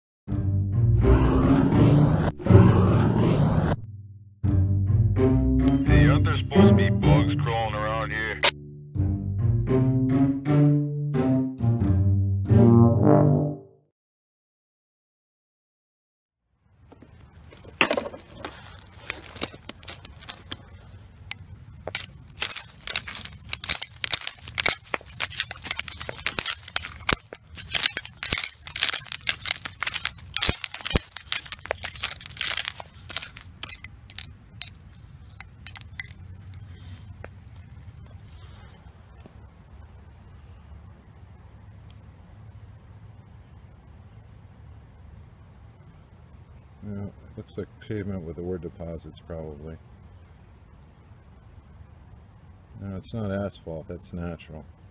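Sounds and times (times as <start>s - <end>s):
high insect trill: 16.5s - 54.9s
dry leaves crackling: 18.5s - 38.0s
metal tool scraping stones: 21.9s - 36.2s.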